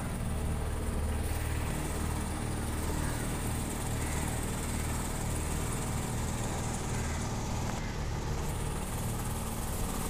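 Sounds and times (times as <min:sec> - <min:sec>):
motorboat engine running: 0:00.0 - 0:10.0.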